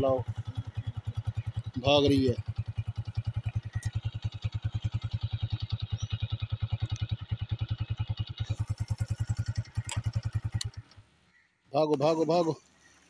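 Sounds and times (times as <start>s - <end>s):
small engine running: 0.0s - 11.2s.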